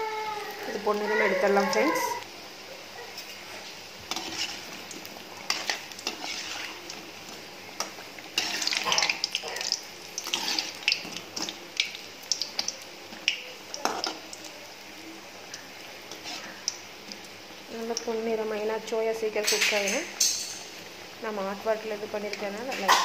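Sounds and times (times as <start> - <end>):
food sizzling in hot oil: 0.0 - 23.0
metal spoon scraping and clinking: 4.1 - 4.7, 5.5 - 6.8.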